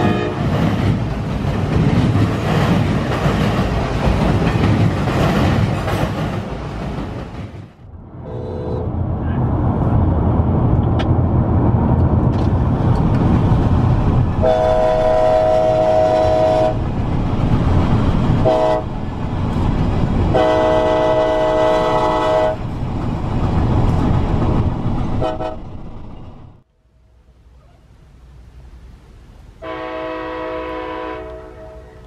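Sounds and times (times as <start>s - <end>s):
locomotive air horn chord: 0.0s - 0.5s, 8.2s - 8.9s, 14.4s - 16.8s, 18.4s - 18.9s, 20.3s - 22.6s, 25.2s - 25.6s, 29.6s - 32.0s.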